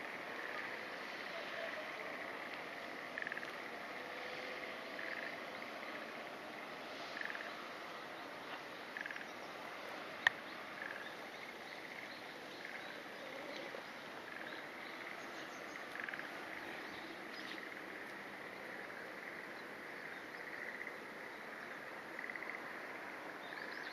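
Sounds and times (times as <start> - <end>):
outdoor ambience: 0.0 - 23.9.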